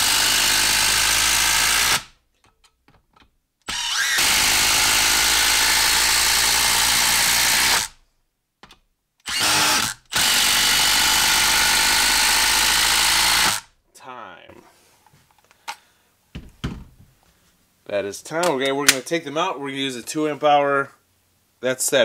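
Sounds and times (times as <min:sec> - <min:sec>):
impact driver hammering screws: 0:00.0 - 0:02.1, 0:03.7 - 0:08.0, 0:09.2 - 0:13.6.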